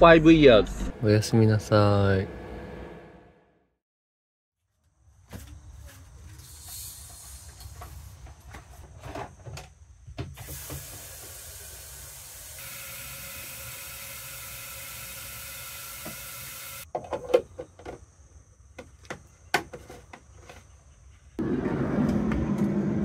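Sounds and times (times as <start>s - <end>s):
hose water running into container: 10.4s - 16.8s.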